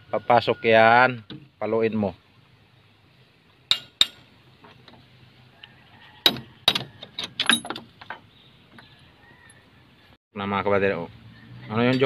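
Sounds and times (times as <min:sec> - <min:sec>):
metallic clinks of steel parts: 0:06.7 - 0:08.3.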